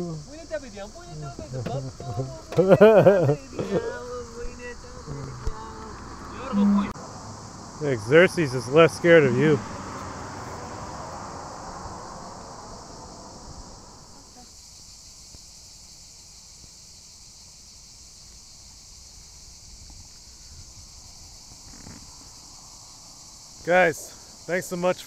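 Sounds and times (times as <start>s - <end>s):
low noise: 0.0s - 14.4s
crickets chirping: 0.0s - 25.0s.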